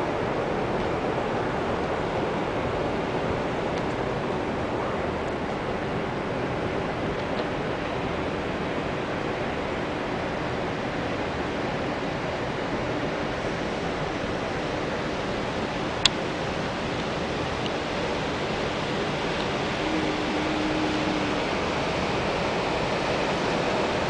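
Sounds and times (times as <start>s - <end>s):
rushing wind on ship deck: 0.0s - 24.0s
faint low hum: 18.1s - 23.0s.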